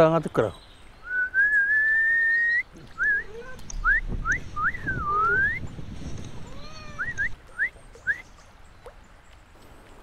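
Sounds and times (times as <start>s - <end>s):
man whistling: 1.0s - 5.7s, 7.0s - 8.2s.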